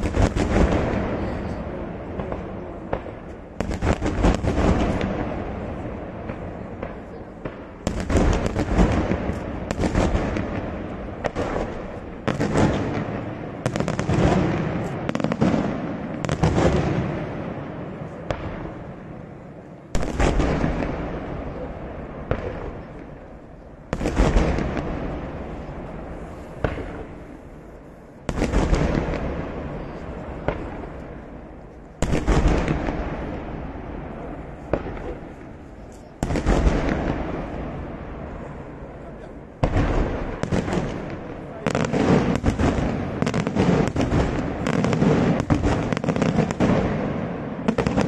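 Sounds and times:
fireworks bursting with bangs: 0.0 - 48.0.

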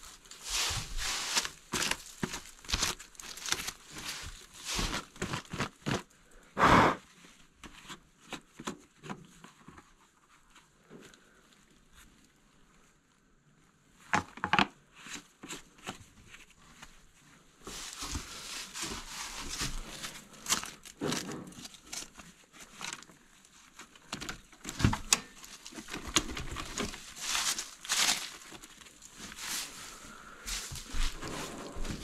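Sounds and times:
dry leaves rustling and crinkling: 0.0 - 6.1, 17.6 - 32.0.

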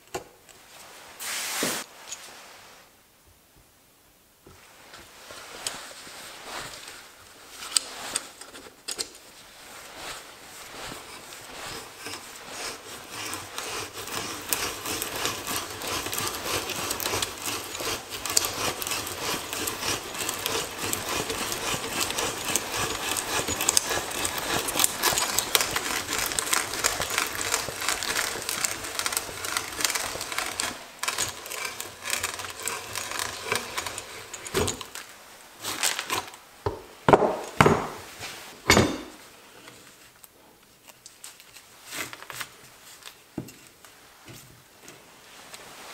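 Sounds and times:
hand brace bit boring into wood: 11.7 - 34.9.

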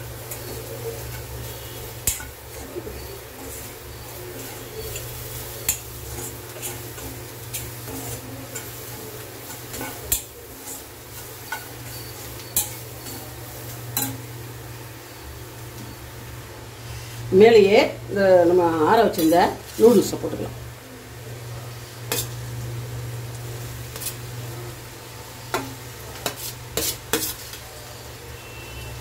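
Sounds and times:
spoon stirring and scraping pan: 0.0 - 16.1, 18.7 - 20.4, 21.7 - 29.0
spoon clinking against pan: 9.4 - 13.3.

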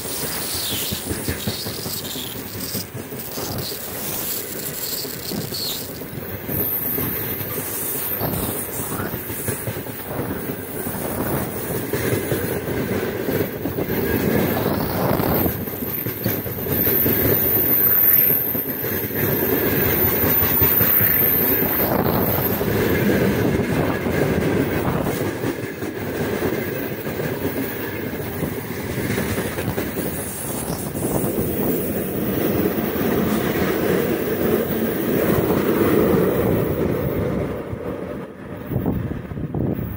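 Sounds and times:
high wheel squeal: 0.0 - 9.2, 16.6 - 22.7
electric locomotive passing: 0.0 - 39.9
freight train rumbling past: 0.0 - 39.9.

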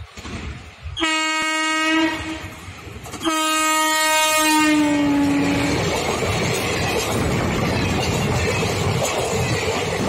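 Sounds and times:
train rumble: 0.0 - 10.0
train horn blasts: 1.0 - 2.6, 3.2 - 5.8.

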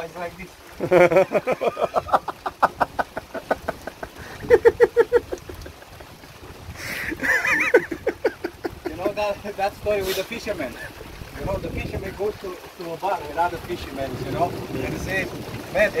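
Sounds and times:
high-pitched laugh: 0.8 - 6.2, 6.8 - 9.0
people laughing: 0.8 - 9.3.

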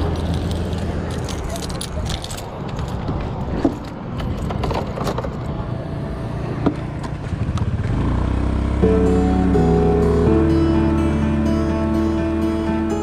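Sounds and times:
sharp clicks and rattles: 0.0 - 5.5
motorbike engine rumbling: 5.3 - 13.0.

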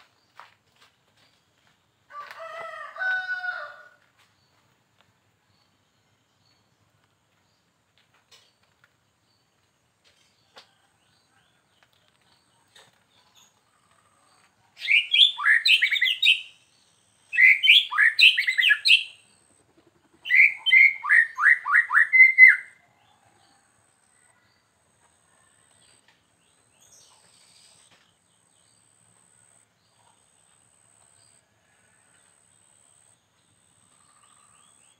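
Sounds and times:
bird singing whistled notes: 14.8 - 16.6, 17.3 - 19.2, 20.3 - 22.8.

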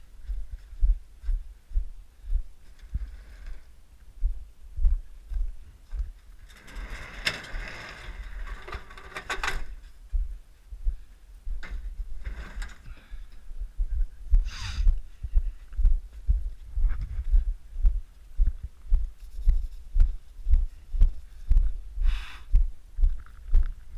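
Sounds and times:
clattering rustling noise: 2.6 - 3.7, 6.1 - 9.9, 11.6 - 13.1.

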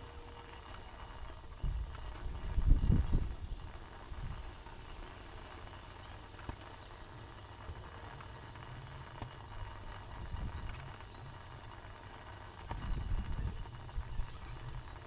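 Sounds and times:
water boiling in a pot: 0.0 - 15.0.

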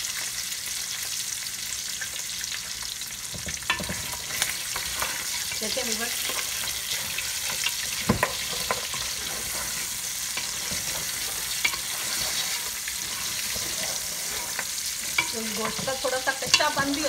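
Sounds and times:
meat and onions sizzling: 0.0 - 17.0
wooden spoon scraping a pot: 3.3 - 17.0.

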